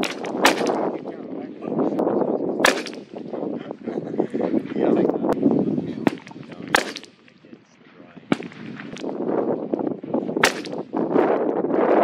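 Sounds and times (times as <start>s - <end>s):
rifle shots: 0.0s - 1.0s, 2.6s - 3.2s, 6.1s - 7.2s, 8.3s - 9.1s, 10.4s - 11.0s
gusting wind: 0.0s - 12.0s.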